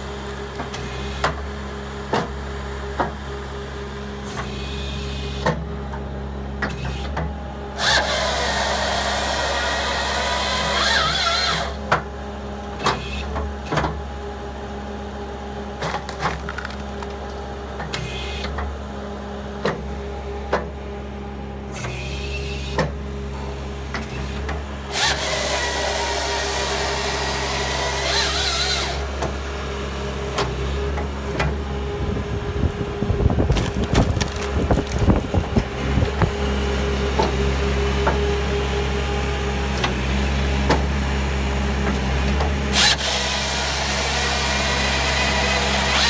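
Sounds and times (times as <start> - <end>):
skid steer engine running: 0.0 - 46.0
saw cutting through log: 7.8 - 11.9, 21.7 - 22.9, 24.0 - 29.5, 42.1 - 46.0
low rumbling: 31.0 - 37.2.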